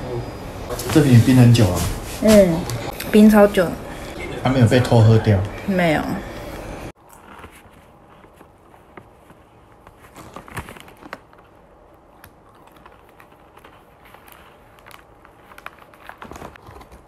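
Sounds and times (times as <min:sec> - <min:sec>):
paper packet crinkling: 0:07.0 - 0:17.0.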